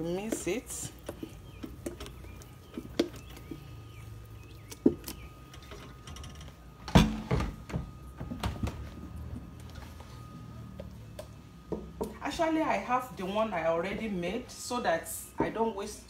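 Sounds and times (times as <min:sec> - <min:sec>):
spoon stirring thick batter: 0:00.0 - 0:06.6.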